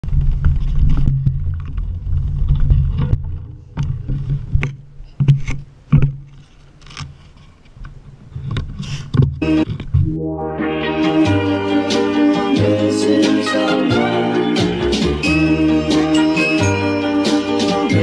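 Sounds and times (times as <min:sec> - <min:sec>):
low rumble: 0:09.4 - 0:12.8.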